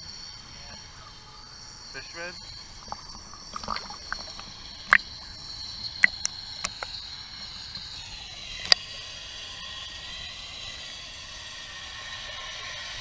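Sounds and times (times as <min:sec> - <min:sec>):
faint high whine: 0:00.0 - 0:13.0
water ticks against camera housing: 0:06.0 - 0:07.0.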